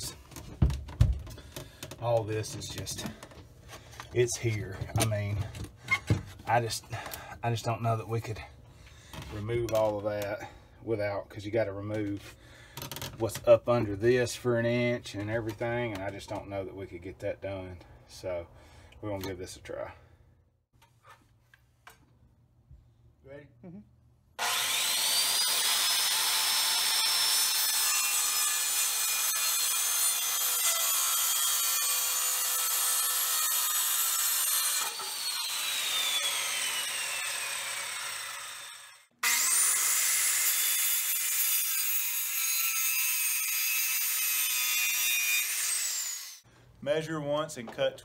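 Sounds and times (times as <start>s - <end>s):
circular saw cutting wood: 24.4s - 46.4s.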